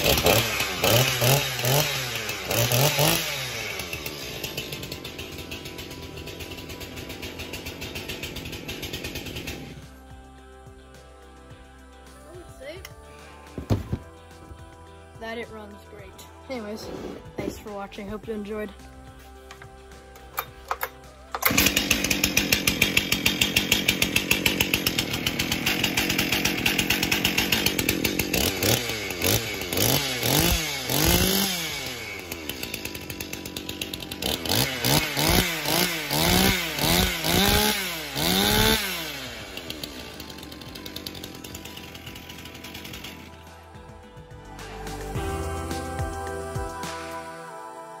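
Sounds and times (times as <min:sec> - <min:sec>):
chainsaw revving and idling: 0:00.0 - 0:47.4.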